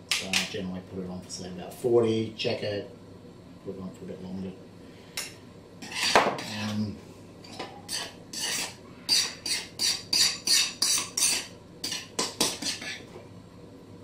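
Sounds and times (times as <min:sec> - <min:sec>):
spoon scraping in bowl: 0:05.8 - 0:06.8, 0:07.5 - 0:13.1.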